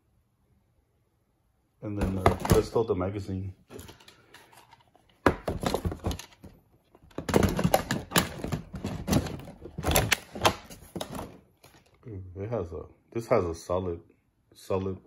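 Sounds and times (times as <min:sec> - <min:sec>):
plastic clacks and knocks: 0:02.0 - 0:02.8, 0:03.7 - 0:11.9.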